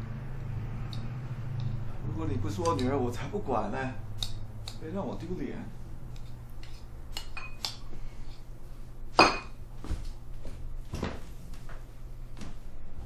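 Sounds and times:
low steady hum: 0.0 - 13.0
utensils clinking on ceramic bowls: 6.6 - 7.8.

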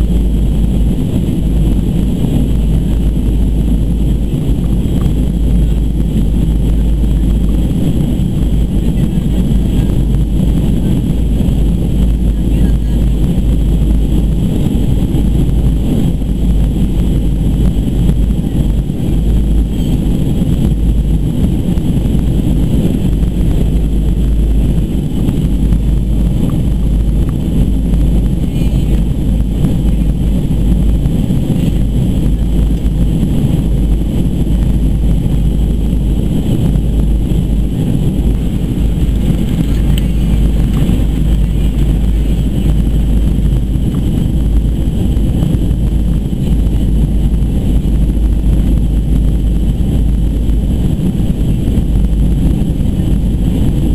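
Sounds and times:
jet engines droning: 0.0 - 53.9
air rushing past fuselage: 13.0 - 53.9.

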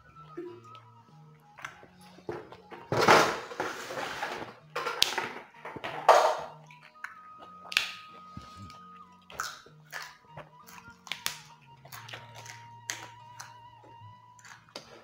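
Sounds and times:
stem snapping: 4.8 - 5.3, 6.2 - 13.6
crunching raw greens while eating: 6.5 - 15.0.

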